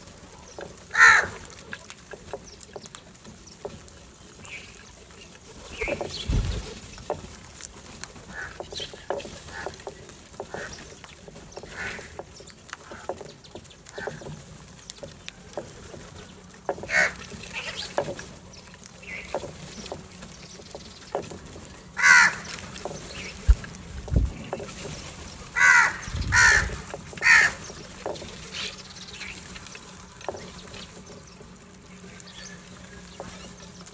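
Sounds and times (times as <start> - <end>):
crows pecking taps: 0.0 - 33.9
wingbeats: 0.0 - 33.9
crows cawing harshly: 0.9 - 1.6, 8.3 - 8.6, 11.7 - 12.2, 16.7 - 17.8, 21.9 - 22.7, 25.5 - 27.8.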